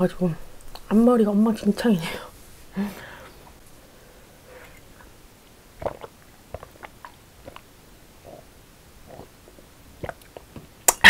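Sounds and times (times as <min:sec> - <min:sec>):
wet mouth clicks: 0:05.8 - 0:07.7, 0:10.0 - 0:11.0
person gulping water: 0:05.8 - 0:11.0.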